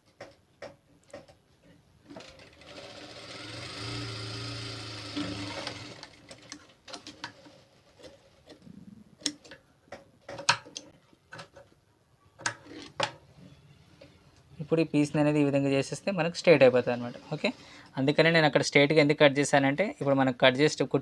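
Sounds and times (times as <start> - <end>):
sewing machine running: 2.1 - 6.5.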